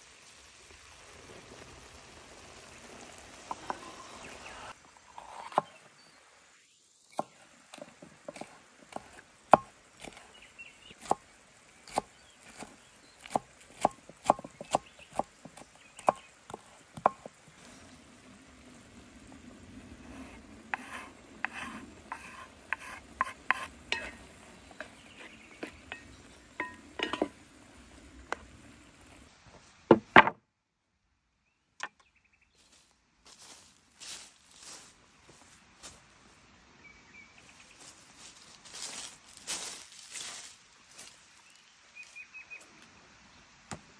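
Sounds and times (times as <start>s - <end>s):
pot simmering hiss: 0.0s - 29.7s
knife chopping on wooden board: 7.2s - 10.2s, 11.0s - 11.2s, 11.8s - 17.3s, 20.7s - 24.2s.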